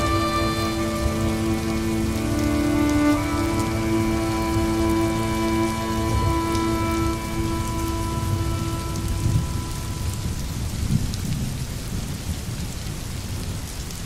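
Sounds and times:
soft background music: 0:00.0 - 0:10.7
steady rain falling: 0:00.0 - 0:14.0
low rumble of thunder: 0:08.9 - 0:13.8.

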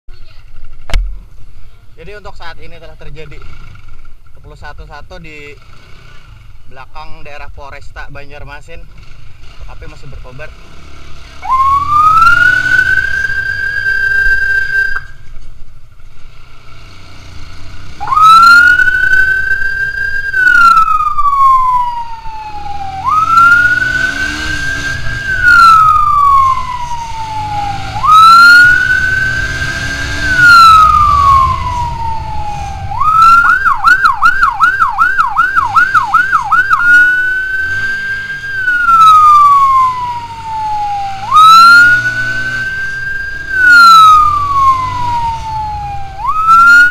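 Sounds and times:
motorcycle engine rumble: 0:00.1 - 0:46.9
electronic siren wailing: 0:11.4 - 0:15.1, 0:17.9 - 0:46.9.

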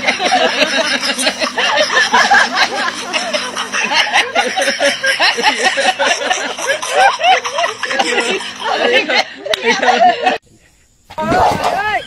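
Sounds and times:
people chuckling and snickering: 0:00.0 - 0:10.5.

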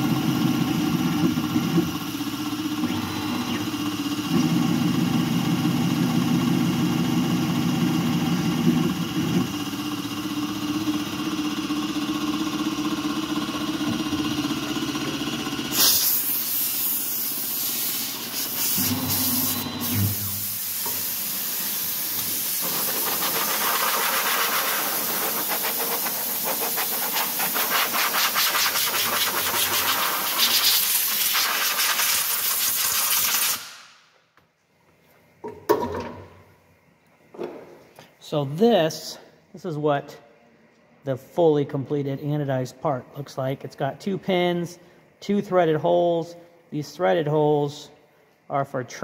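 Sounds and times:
milling machine whine: 0:00.0 - 0:15.8, 0:17.2 - 0:23.2
loud hiss of air nozzle: 0:15.7 - 0:34.0.

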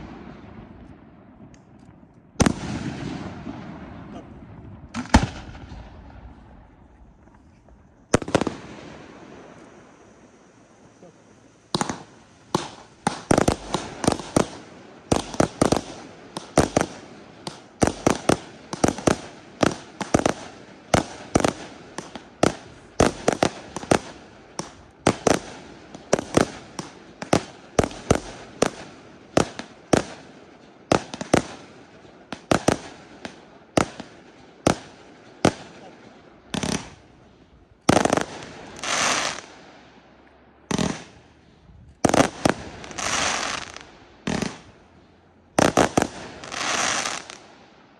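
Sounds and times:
hissing firework bursts: 0:02.4 - 0:47.9
firework shells bursting: 0:11.6 - 0:28.8.

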